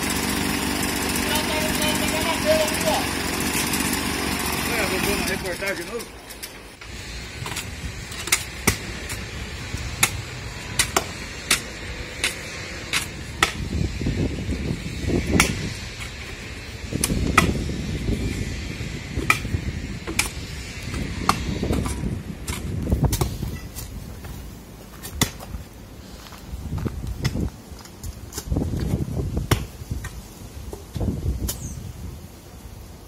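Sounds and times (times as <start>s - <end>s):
hoes chopping into soil: 7.4s - 13.8s, 15.2s - 17.6s, 19.2s - 24.0s, 24.8s - 25.6s, 27.2s - 31.7s.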